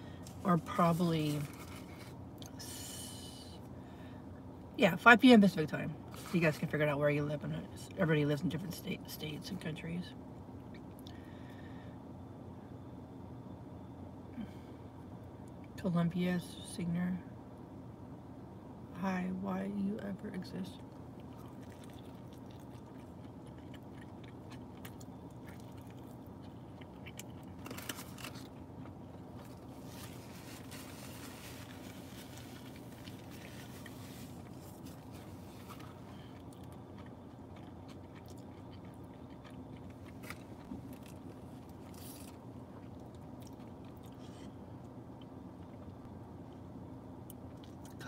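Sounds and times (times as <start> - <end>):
low hum: 0.0 - 48.0
person chewing food: 20.8 - 46.0.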